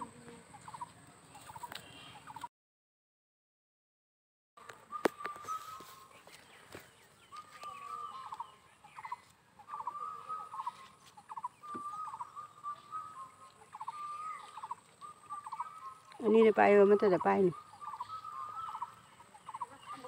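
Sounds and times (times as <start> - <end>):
faint bird call with trill: 4.6 - 6.3, 7.3 - 20.0.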